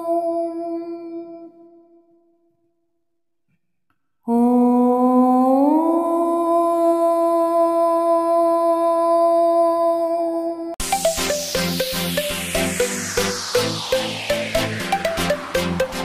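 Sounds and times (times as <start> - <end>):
long humming note sliding up: 10.9 - 16.0.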